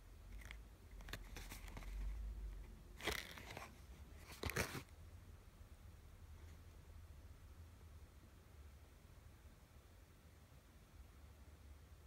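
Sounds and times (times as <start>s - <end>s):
cardboard packaging crinkling and rustling: 3.0s - 4.9s.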